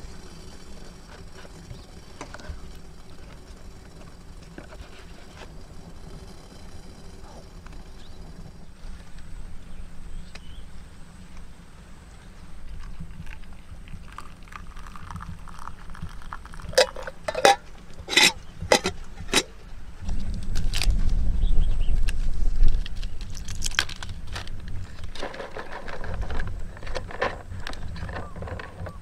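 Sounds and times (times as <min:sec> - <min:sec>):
water pouring into metal mug: 0:13.2 - 0:19.5
low rumble: 0:16.8 - 0:25.2.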